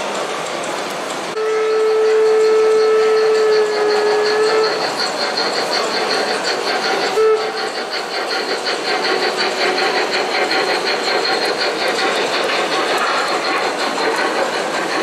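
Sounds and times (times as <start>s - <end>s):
model train wheels clicking: 0.0s - 15.0s
train whistle toot: 1.4s - 4.8s, 7.1s - 7.8s.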